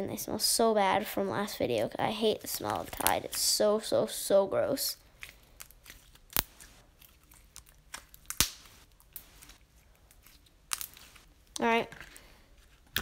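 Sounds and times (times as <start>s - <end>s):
slime crackling: 2.4s - 3.7s, 5.1s - 11.8s.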